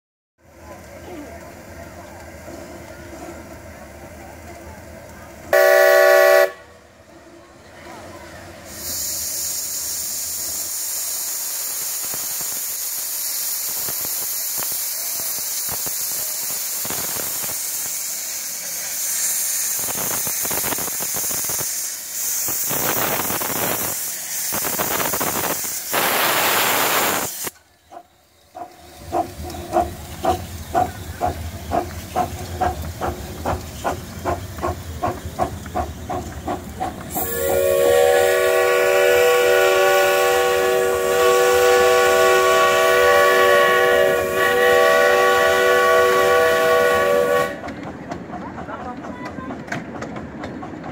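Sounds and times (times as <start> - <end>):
steam locomotive exhaust chuffs: 0.8 - 6.6, 8.4 - 50.9
steam venting hiss: 8.5 - 48.4.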